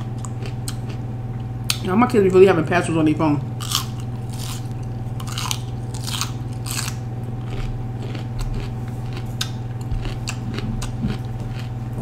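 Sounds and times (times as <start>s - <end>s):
crunching raw pepper: 3.6s - 12.0s.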